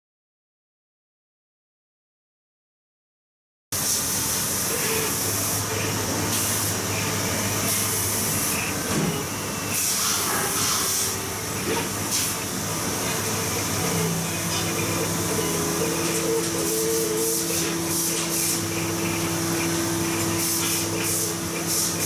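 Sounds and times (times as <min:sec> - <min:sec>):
machine hiss and hum: 0:03.8 - 0:22.0
cutting head whirring: 0:04.5 - 0:22.0.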